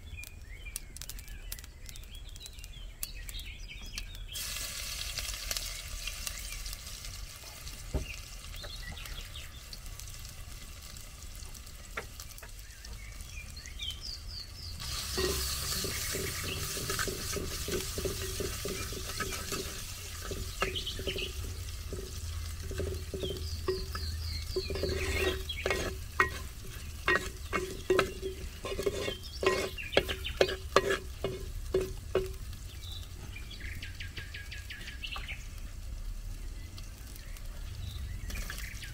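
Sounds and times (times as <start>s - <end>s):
hissing sizzle: 4.1s - 38.9s
wooden spoon stirring in clay pot: 14.8s - 32.5s
spoon knocking against pot: 15.1s - 32.4s.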